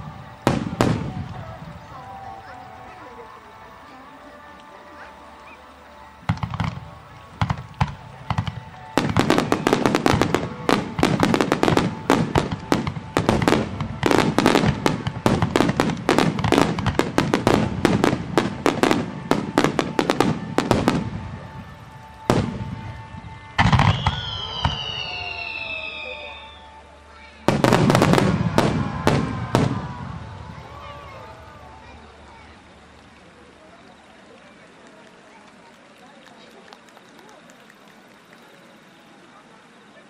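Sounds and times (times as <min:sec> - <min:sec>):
fireworks bangs: 0:00.0 - 0:03.0, 0:06.2 - 0:26.6, 0:27.5 - 0:32.6.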